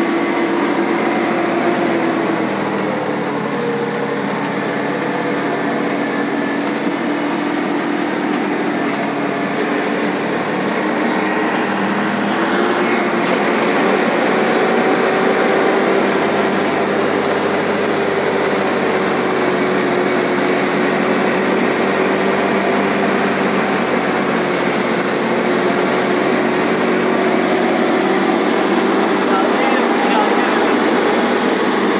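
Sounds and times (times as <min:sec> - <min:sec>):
road noise: 0:00.0 - 0:31.9
truck engine running: 0:00.0 - 0:31.9.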